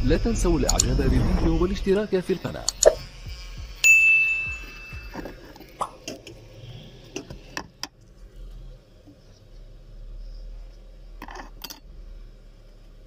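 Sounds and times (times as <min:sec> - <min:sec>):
bell-like notification ding: 0:03.8 - 0:05.2.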